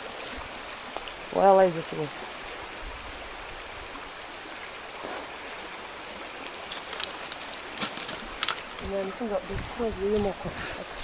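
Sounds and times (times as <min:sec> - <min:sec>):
river rushing: 0:00.0 - 0:11.0.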